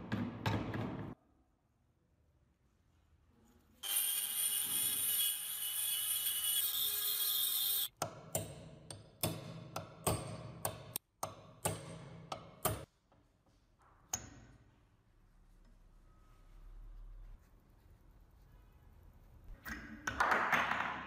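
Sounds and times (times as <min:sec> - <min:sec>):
rotary tool polishing metal: 0:03.8 - 0:07.9.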